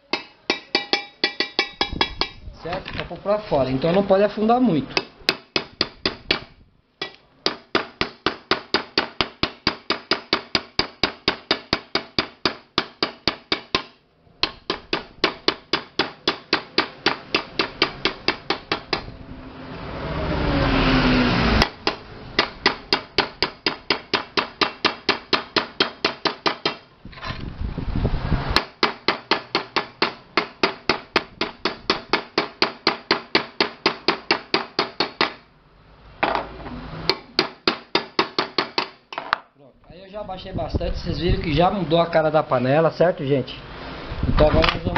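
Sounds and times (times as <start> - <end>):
small hammer tapping on metal: 0.0 - 2.4, 5.0 - 19.1.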